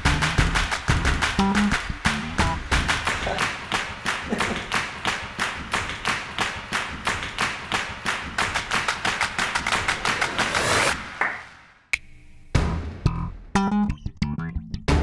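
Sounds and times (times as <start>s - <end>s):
percussion music fast beat: 0.0s - 11.4s.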